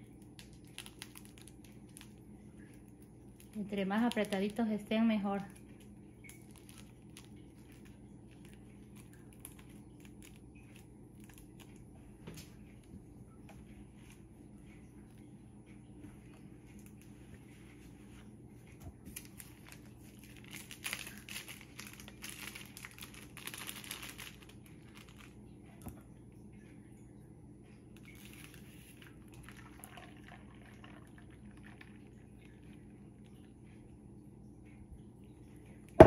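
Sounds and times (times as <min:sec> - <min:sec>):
plastic bag crinkling: 0:00.0 - 0:11.8, 0:19.1 - 0:25.4, 0:28.0 - 0:32.8
steady low hum: 0:00.0 - 0:36.0.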